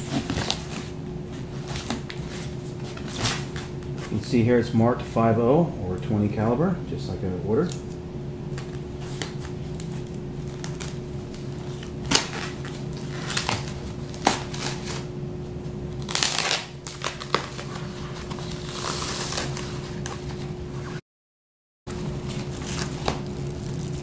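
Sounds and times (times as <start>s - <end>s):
steady low hum: 0.0s - 21.0s, 21.9s - 24.0s
packing wrap crinkling: 8.6s - 15.1s, 16.0s - 20.5s, 21.9s - 24.0s.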